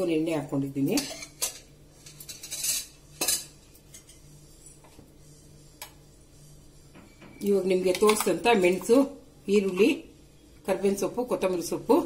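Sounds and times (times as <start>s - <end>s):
metal utensils clinking on cookware: 0.8s - 4.2s.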